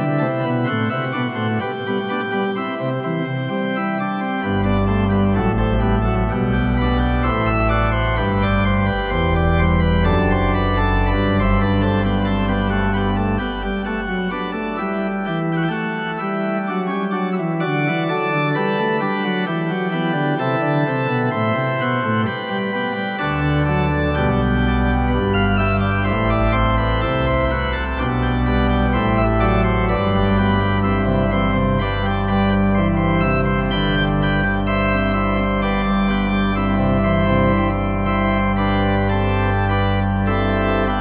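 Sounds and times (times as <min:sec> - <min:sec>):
pipe organ chords: 0:00.0 - 0:41.0
deep pedal bass notes: 0:04.5 - 0:15.3, 0:23.3 - 0:41.0.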